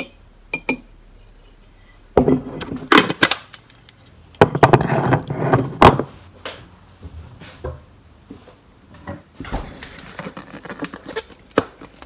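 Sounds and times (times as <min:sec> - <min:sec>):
knocks and scraping on counter: 0:04.4 - 0:06.1.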